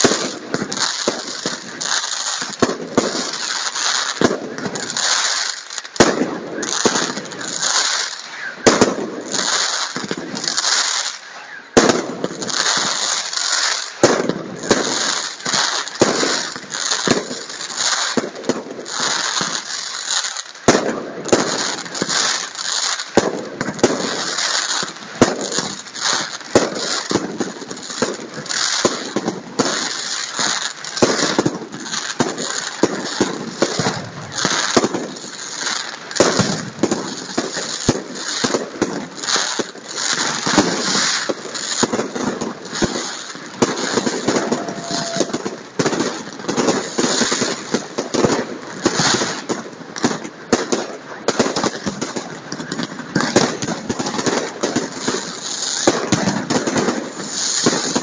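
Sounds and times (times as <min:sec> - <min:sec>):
fireworks crackling: 0:00.0 - 0:58.0
fireworks sharp bangs: 0:00.0 - 0:58.0.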